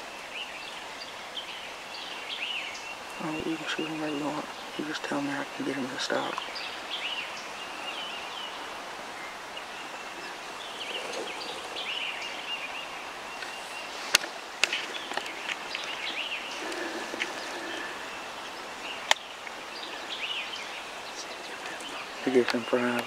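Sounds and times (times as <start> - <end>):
songbirds chirping and warbling: 0.0 - 23.0
steady outdoor hiss: 0.0 - 23.0.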